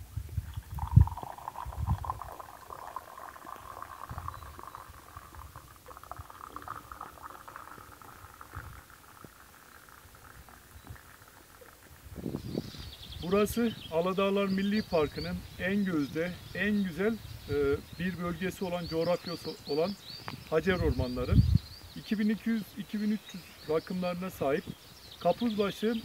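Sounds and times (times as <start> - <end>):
tea pouring into a cup: 0.4 - 19.9.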